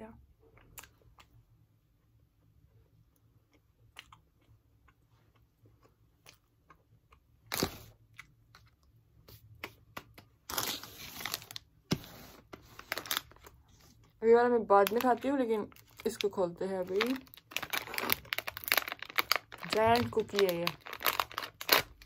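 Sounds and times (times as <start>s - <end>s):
chewing: 3.1s - 7.3s
plastic wrapper crinkling: 10.4s - 11.7s, 12.4s - 22.0s.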